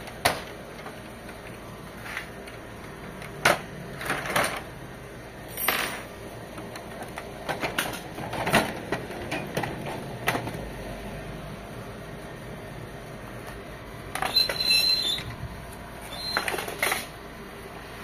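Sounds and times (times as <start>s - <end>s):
printer parts clicking and clattering: 0.0s - 1.6s, 2.2s - 4.8s, 5.6s - 10.6s, 16.1s - 17.2s.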